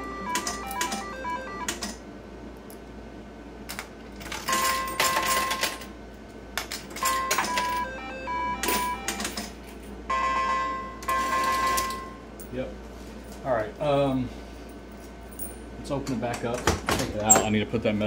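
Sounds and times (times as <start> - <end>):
slot reels spinning and clunking: 0.1 - 2.0, 4.2 - 5.9, 6.6 - 9.6, 11.0 - 12.1.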